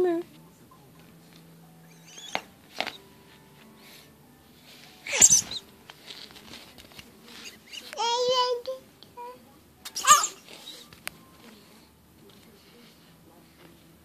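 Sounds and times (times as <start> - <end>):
baby squealing: 5.1 - 5.6, 10.0 - 10.4.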